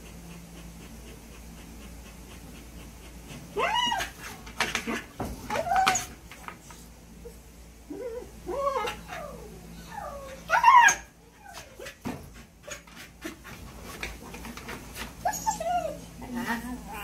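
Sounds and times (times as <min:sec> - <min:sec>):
dog whining: 0:03.5 - 0:04.4, 0:05.5 - 0:06.2, 0:07.2 - 0:12.0, 0:15.2 - 0:16.2.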